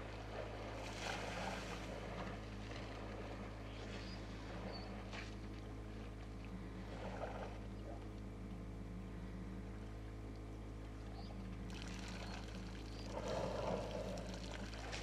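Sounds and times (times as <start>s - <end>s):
light splash: 0.0s - 6.4s, 11.7s - 15.0s
engine idling hum: 0.0s - 15.0s.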